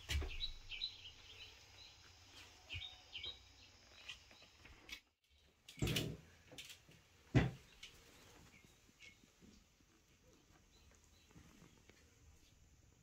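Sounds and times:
faint bird chirps: 0:00.1 - 0:04.7.

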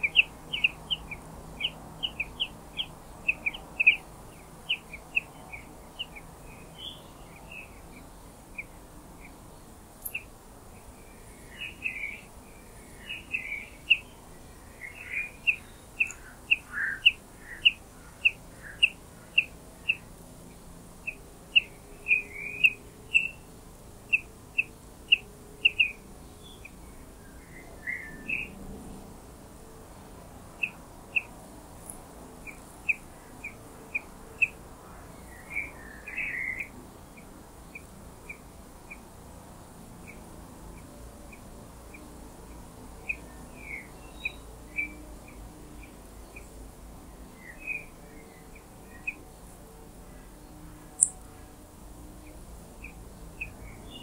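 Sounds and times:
nestlings chirping: 0:00.0 - 0:04.1, 0:14.9 - 0:20.0, 0:51.0 - 0:51.2.

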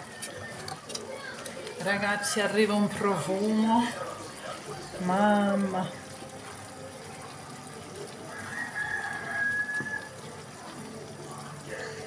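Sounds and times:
faint kitchen noise: 0:00.0 - 0:12.0.

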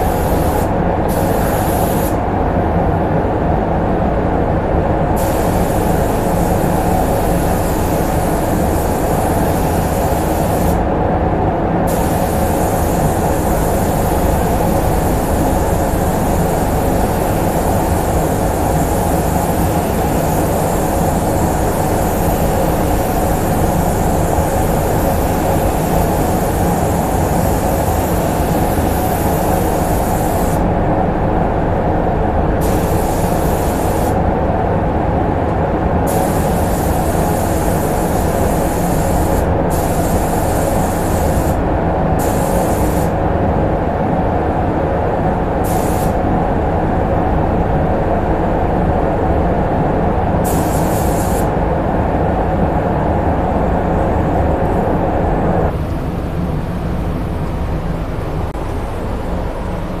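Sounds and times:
paint spray gun hissing: 0:00.0 - 0:02.2, 0:05.2 - 0:10.8, 0:11.9 - 0:30.6, 0:32.6 - 0:34.2, 0:36.1 - 0:41.6, 0:42.2 - 0:43.2, 0:45.6 - 0:46.2, 0:50.4 - 0:51.5
ventilation fans rushing: 0:00.0 - 1:00.0.

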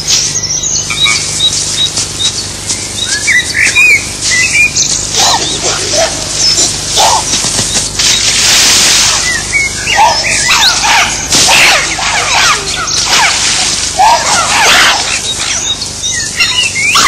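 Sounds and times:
chimpanzees screaming: 0:00.9 - 0:01.5, 0:03.0 - 0:07.7, 0:09.0 - 0:17.0.

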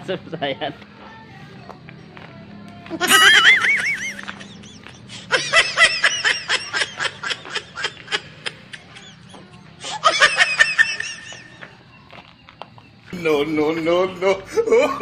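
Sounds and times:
high-pitched laughing sound effect: 0:03.0 - 0:11.5.

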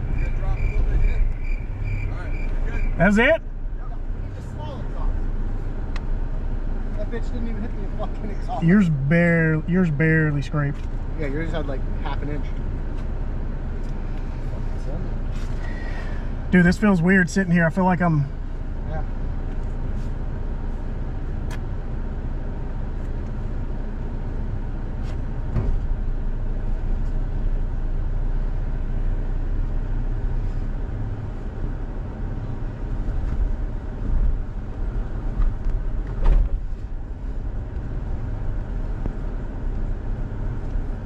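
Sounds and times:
engine and tyres rumbling: 0:00.0 - 0:41.0
knocks and clunks: 0:35.3 - 0:36.8.

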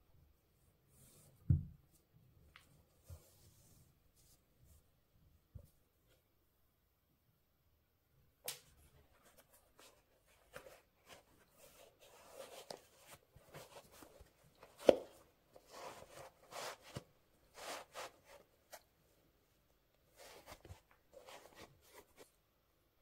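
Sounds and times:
hands rustling: 0:09.2 - 0:18.9.

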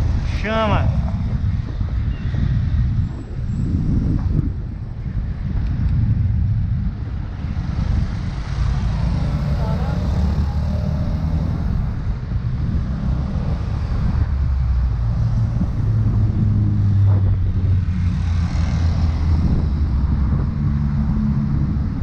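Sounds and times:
street traffic rumble: 0:00.0 - 0:22.0
motorcycle passing: 0:07.5 - 0:22.0.

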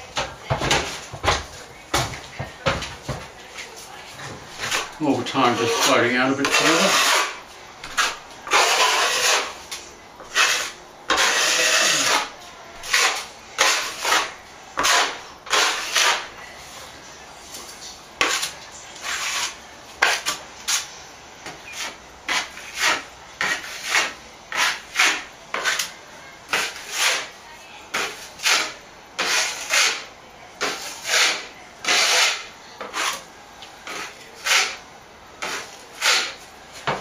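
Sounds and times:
plastering knife scraping ceiling: 0:04.5 - 0:09.6, 0:10.2 - 0:16.3, 0:18.2 - 0:25.9, 0:26.5 - 0:27.3, 0:27.9 - 0:34.8, 0:35.4 - 0:37.0.

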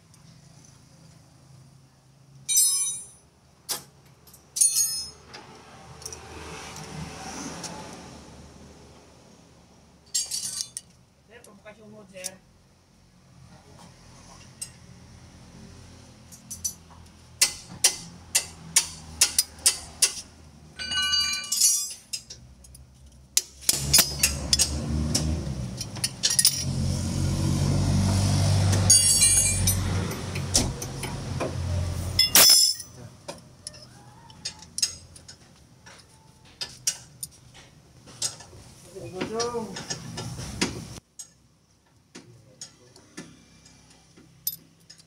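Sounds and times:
ringing metallic clink: 0:02.5 - 0:03.2, 0:20.8 - 0:22.3, 0:28.9 - 0:29.8, 0:32.2 - 0:33.0
metal tools clinking on metal parts: 0:02.5 - 0:05.4, 0:10.1 - 0:11.0, 0:16.3 - 0:16.9, 0:20.8 - 0:26.7, 0:28.9 - 0:31.1, 0:32.2 - 0:37.4, 0:44.4 - 0:45.0.

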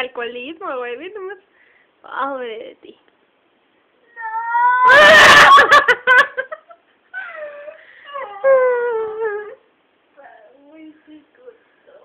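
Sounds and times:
long wailing cries: 0:04.1 - 0:05.9, 0:07.2 - 0:09.6.

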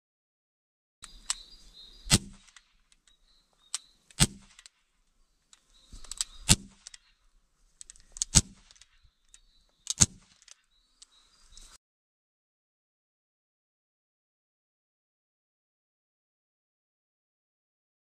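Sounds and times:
small click: 0:01.0 - 0:01.4
air pistol cracks: 0:02.1 - 0:03.1, 0:03.7 - 0:04.8, 0:05.5 - 0:07.1, 0:07.8 - 0:11.2.

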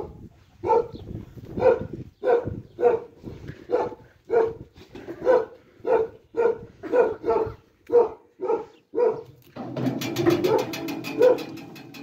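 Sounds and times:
dog barking: 0:00.0 - 0:01.0, 0:01.6 - 0:04.6, 0:05.2 - 0:09.3, 0:10.4 - 0:11.5.

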